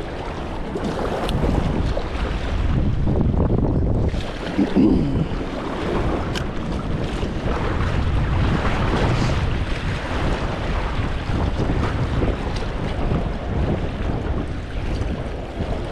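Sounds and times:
wind buffeting microphone: 0.0 - 15.9
water rushing: 3.9 - 15.9.

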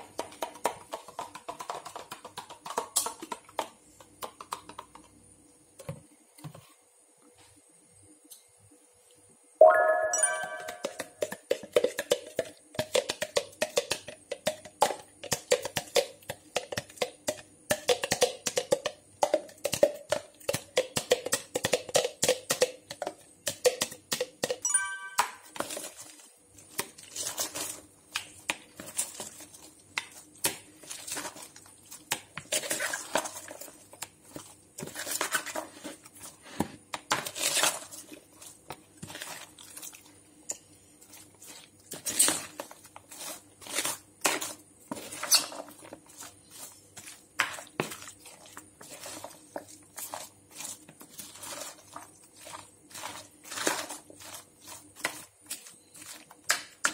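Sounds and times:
background music: 9.6 - 11.0
spatula knocking against bowl: 10.3 - 12.2
wet squelching and crunching salad: 24.8 - 56.9.

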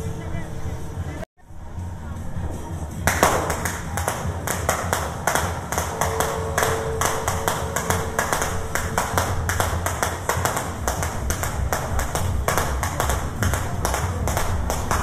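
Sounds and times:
low rumble: 0.0 - 15.0
rapid sharp cracks: 3.0 - 15.0.

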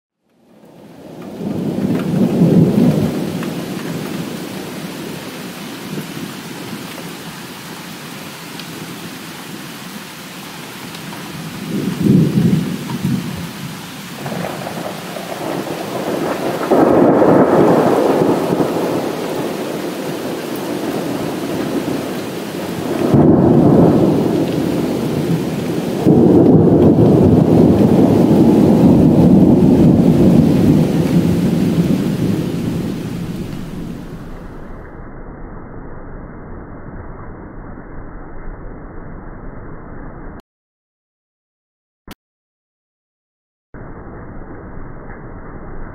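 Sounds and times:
steady rain: 0.2 - 34.8
thunder rumbling: 0.5 - 9.2, 10.9 - 40.1.

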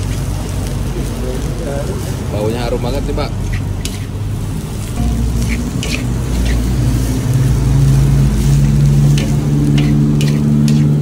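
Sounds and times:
metal spatula scraping a wok: 3.4 - 4.2, 5.0 - 11.0.

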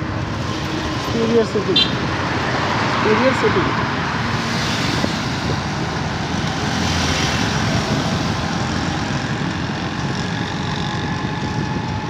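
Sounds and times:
road noise: 0.0 - 12.0
wind on microphone: 3.7 - 12.0
motorcycle engine running: 8.0 - 12.0.

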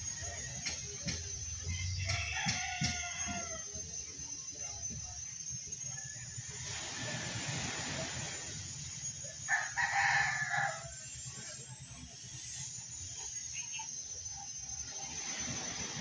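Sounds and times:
rooster crowing: 1.6 - 3.8, 9.4 - 11.1.

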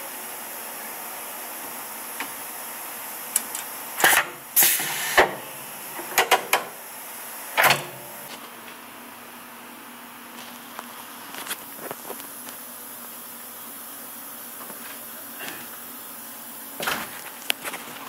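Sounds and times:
short loud hisses and clacks: 4.0 - 5.3
machine hiss: 4.0 - 8.3.

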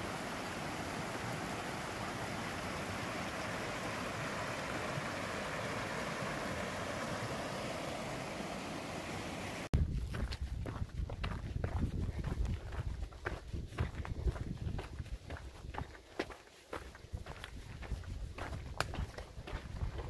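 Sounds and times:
creek rushing over rocks: 0.0 - 9.7.

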